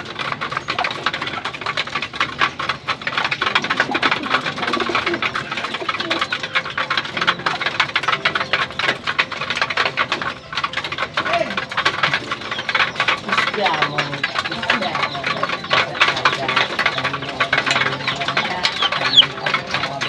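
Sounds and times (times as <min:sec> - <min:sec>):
beaks tapping metal trough: 0:00.0 - 0:20.0.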